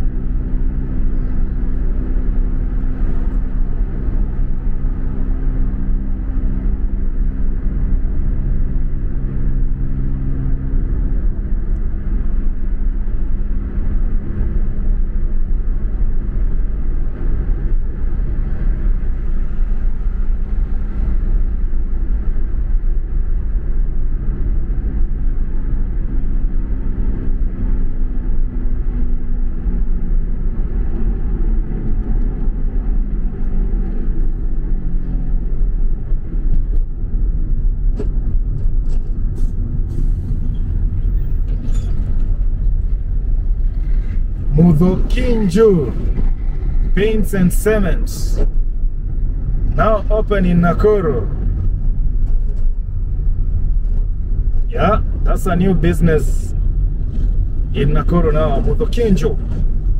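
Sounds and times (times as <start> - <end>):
tyre noise on highway: 0.0 - 59.9
car engine humming: 33.7 - 59.9.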